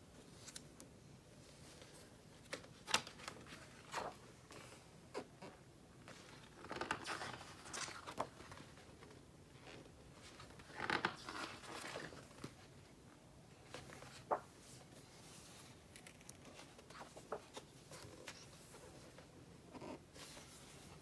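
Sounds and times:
magazine pages rustling: 0:06.0 - 0:12.9, 0:13.6 - 0:19.3.

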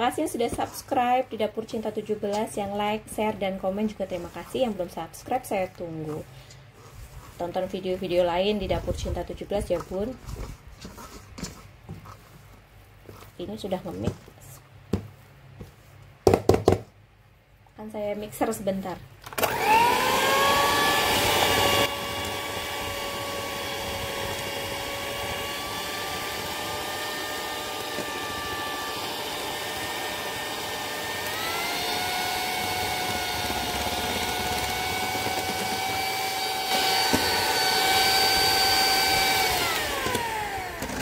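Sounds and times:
electric mixer whining: 0:19.3 - 0:41.0.

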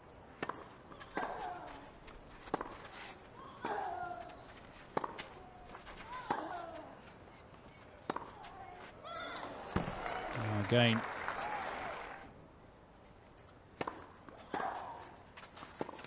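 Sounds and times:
rackets striking tennis ball: 0:00.4 - 0:01.8, 0:02.4 - 0:02.9, 0:03.5 - 0:06.8, 0:08.0 - 0:08.6, 0:13.8 - 0:16.0.

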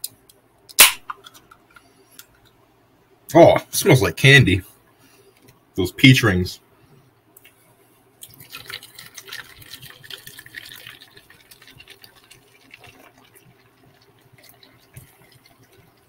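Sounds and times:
liquid pouring into plastic cup: 0:08.2 - 0:16.0.

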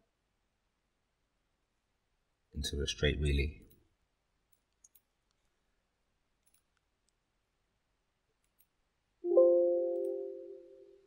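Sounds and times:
faint mouse clicks: 0:04.5 - 0:05.6, 0:06.4 - 0:07.2, 0:08.4 - 0:08.8
chime chord: 0:09.3 - 0:11.0.

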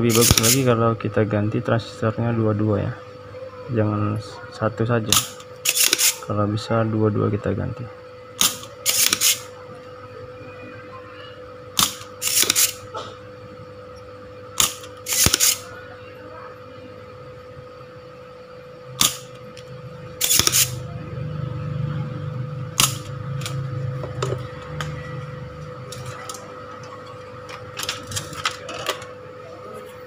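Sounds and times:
desoldering pump snapping: 0:00.1 - 0:00.7, 0:05.1 - 0:06.2, 0:08.4 - 0:09.4, 0:11.8 - 0:12.8, 0:14.6 - 0:15.7, 0:19.0 - 0:20.8, 0:22.7 - 0:25.0.

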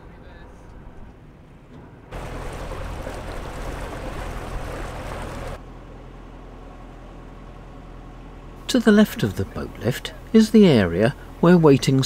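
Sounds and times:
boat engine running: 0:02.1 - 0:05.6.

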